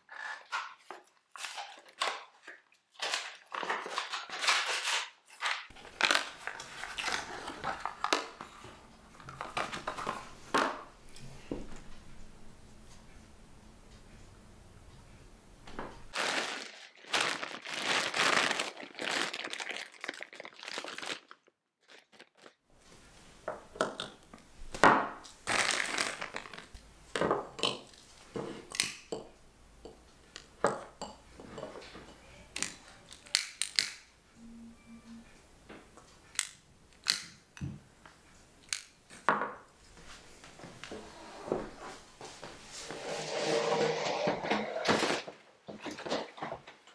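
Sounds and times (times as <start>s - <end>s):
crinkling: 0.2s - 10.8s, 16.1s - 22.6s, 25.4s - 26.8s.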